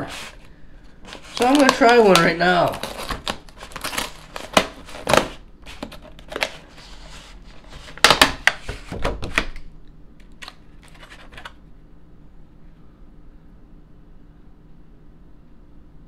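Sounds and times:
plastic tray crackling and snapping: 1.1s - 6.7s, 7.7s - 11.6s.

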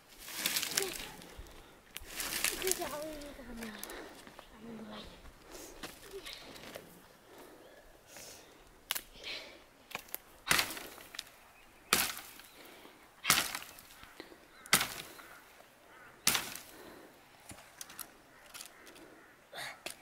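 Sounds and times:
axe chopping wood: 9.9s - 11.0s, 11.9s - 12.4s, 13.2s - 13.8s, 14.7s - 15.1s, 16.2s - 16.7s
wood cracking and ticking: 11.9s - 20.0s.

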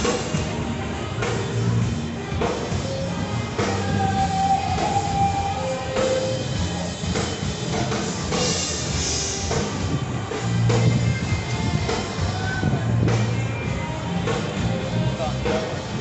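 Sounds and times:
drum kit steady beat: 0.0s - 16.0s
rock music: 0.0s - 16.0s.

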